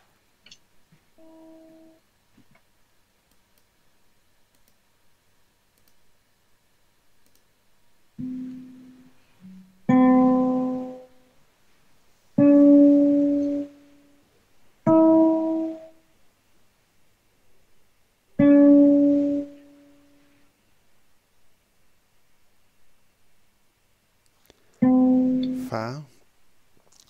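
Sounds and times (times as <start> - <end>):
plucked guitar notes: 8.2 - 11.0, 24.8 - 25.6.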